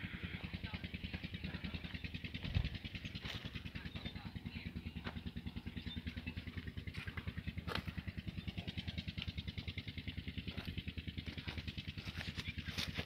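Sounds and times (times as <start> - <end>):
tractor diesel engine idling: 0.0 - 13.0.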